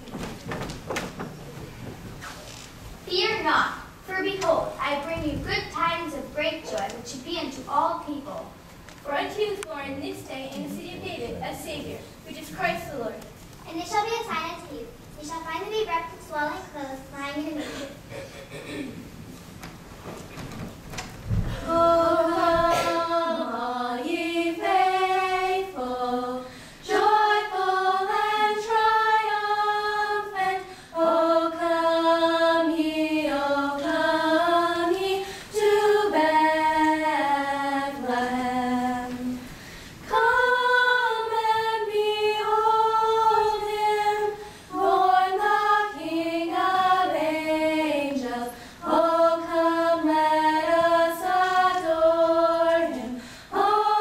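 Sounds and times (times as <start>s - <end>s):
girls singing a carol in unison: 21.5s - 54.0s.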